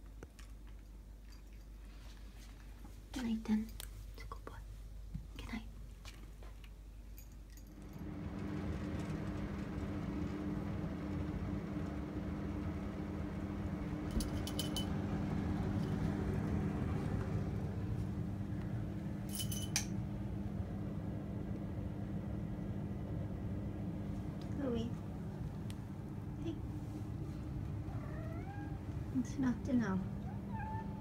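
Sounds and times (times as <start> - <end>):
light metallic jingles: 7.1 - 7.8, 14.1 - 14.9, 19.3 - 19.9
low machine hum: 7.1 - 31.0.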